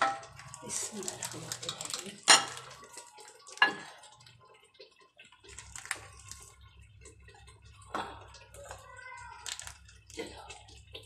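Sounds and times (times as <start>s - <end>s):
ladle clinking: 0.0s - 8.8s
thick liquid pouring into bowl: 0.0s - 11.0s.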